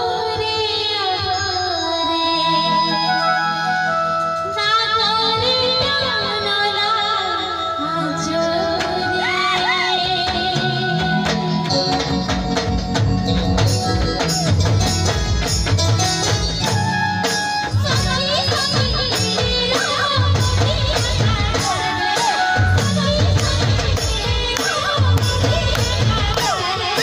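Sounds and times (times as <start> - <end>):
woman singing: 0.0 - 12.1, 17.4 - 27.0
drums steady beat: 8.4 - 27.0.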